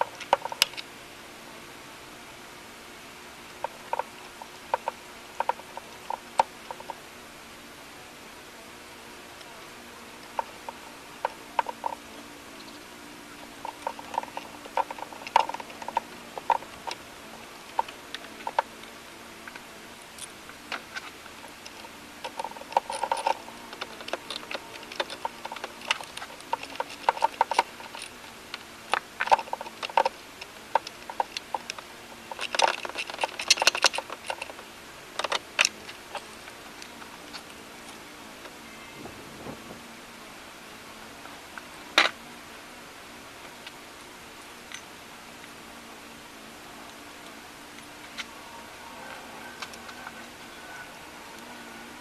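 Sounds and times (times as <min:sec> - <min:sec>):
plastic and metal parts clicking: 0:00.0 - 0:00.9, 0:13.6 - 0:38.0.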